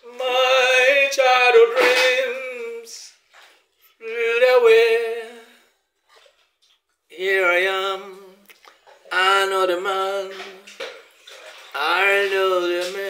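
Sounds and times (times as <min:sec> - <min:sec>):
man singing unaccompanied: 0:00.0 - 0:03.2, 0:04.0 - 0:05.6, 0:07.1 - 0:10.8, 0:11.7 - 0:13.0.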